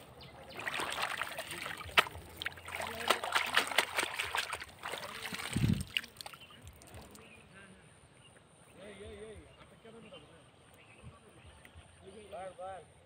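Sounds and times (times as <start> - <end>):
hand splashing in muddy water: 0.4 - 7.3
water trickling and dripping: 0.4 - 7.4.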